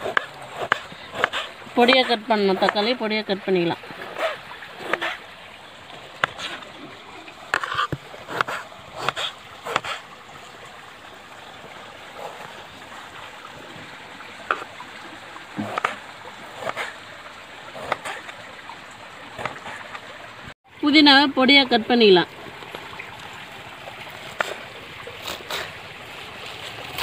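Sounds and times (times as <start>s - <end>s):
knife chopping on wooden board: 0.0s - 1.5s, 7.5s - 10.0s
running water: 0.0s - 27.0s.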